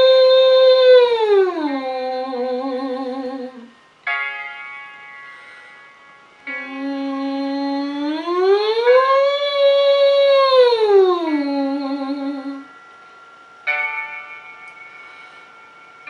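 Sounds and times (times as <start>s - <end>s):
woman vocal siren glide: 0.0s - 3.7s, 6.5s - 12.7s.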